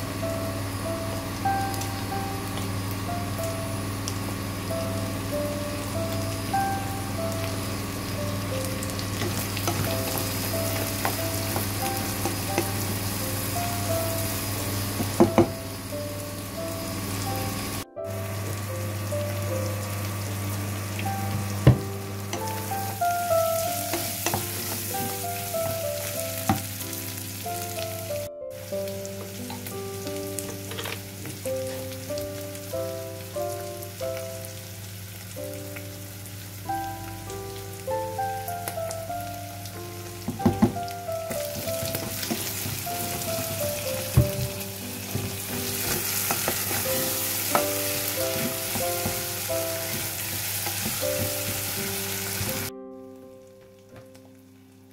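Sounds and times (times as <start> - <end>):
background music melody: 0.0 - 54.9
food sizzling in a pan: 0.1 - 52.7.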